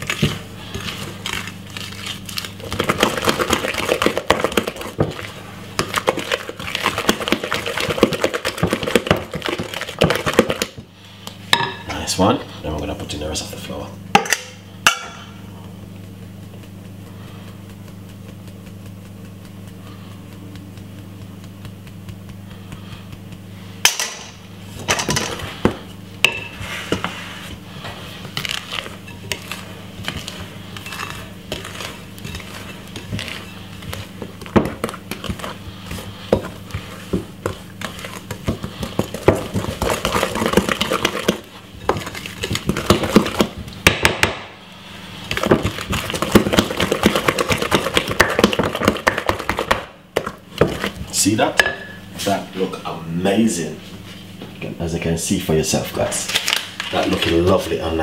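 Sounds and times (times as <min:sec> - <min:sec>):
wooden spoon scraping glass bowl: 0:25.0 - 0:43.4.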